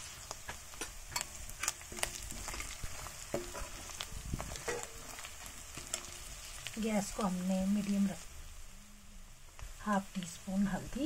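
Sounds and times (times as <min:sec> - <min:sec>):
onions sizzling in hot oil: 0:00.0 - 0:11.0
ladle scraping a pan: 0:01.1 - 0:06.7.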